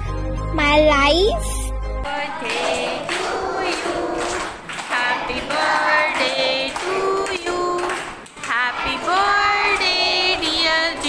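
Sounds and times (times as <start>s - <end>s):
children singing a birthday song: 2.1s - 11.0s.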